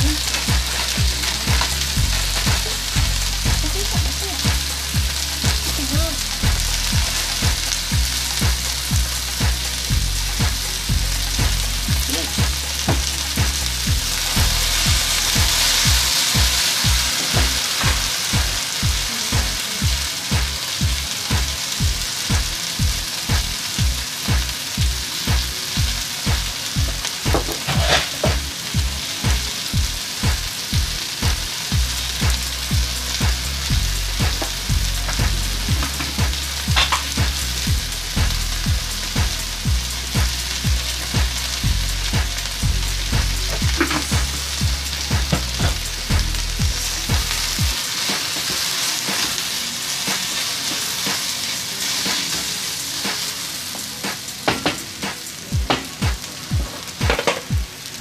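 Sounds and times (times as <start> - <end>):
regular low pulse: 0.0 - 24.0
vegetables sizzling in hot oil: 0.0 - 58.0.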